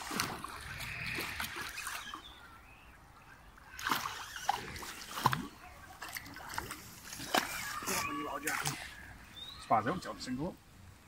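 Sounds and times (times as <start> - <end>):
fish splashing at water surface: 0.0 - 2.2, 3.7 - 9.0.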